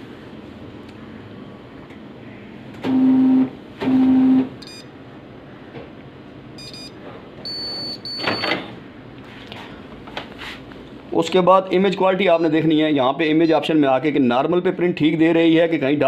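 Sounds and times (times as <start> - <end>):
copier starting up noise: 2.8 - 4.6
low buzzing beeps: 2.9 - 4.9, 6.6 - 8.8.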